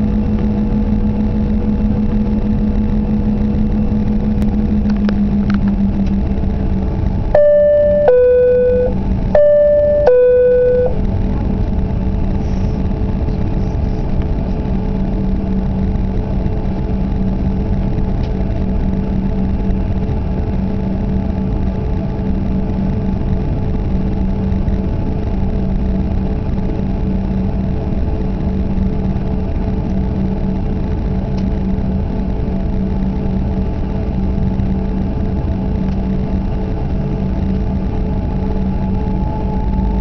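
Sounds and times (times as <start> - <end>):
jet engines droning in cabin: 0.0 - 40.0
two-tone cabin chime: 7.4 - 11.0.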